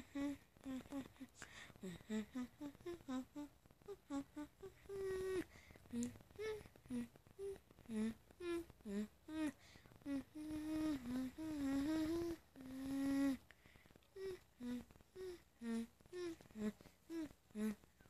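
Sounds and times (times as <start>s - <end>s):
boy humming a tune: 0.0s - 13.5s, 14.2s - 17.8s.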